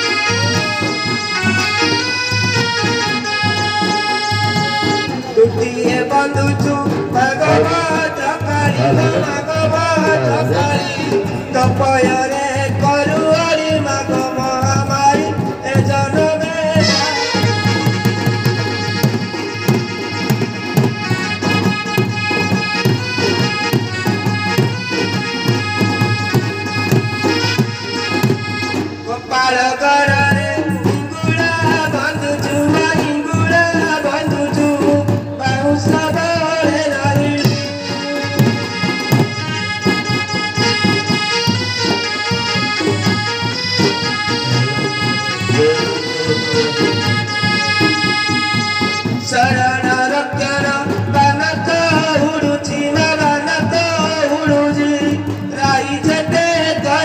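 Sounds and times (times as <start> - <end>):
barrel drum beats: 0.0 - 57.0
person singing: 3.6 - 18.7, 29.1 - 39.0, 43.3 - 48.3.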